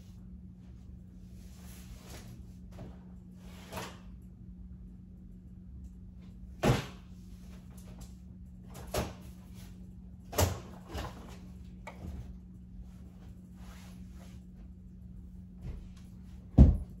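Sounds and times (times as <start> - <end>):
steady low hum: 0.0 - 17.0
household items knocking and thudding: 16.5 - 17.0.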